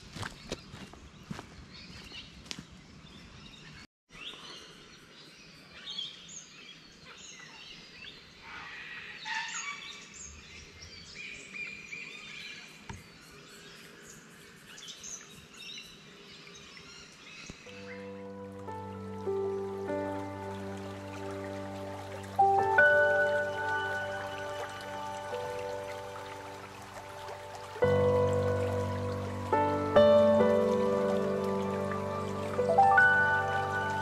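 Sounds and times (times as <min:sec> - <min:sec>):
footsteps on dirt track: 0:00.0 - 0:02.8
soft music with held tones: 0:17.6 - 0:34.0.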